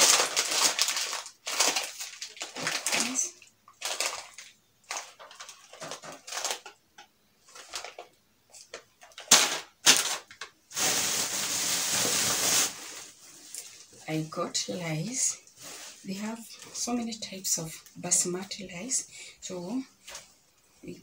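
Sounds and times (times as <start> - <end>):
plastic bag crinkling: 0.0 - 6.8, 7.4 - 14.0.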